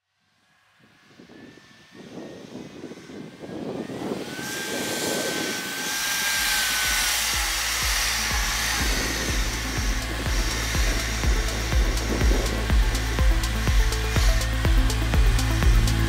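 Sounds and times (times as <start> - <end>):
thin steady whine: 0.0 - 16.0
vehicle engine rumble: 3.2 - 16.0.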